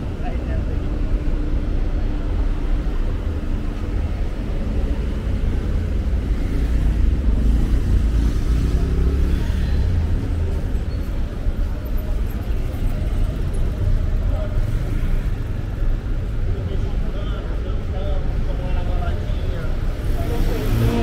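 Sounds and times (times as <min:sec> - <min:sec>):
low rumble of cars: 0:00.0 - 0:21.0
vehicle passing close: 0:20.0 - 0:21.0.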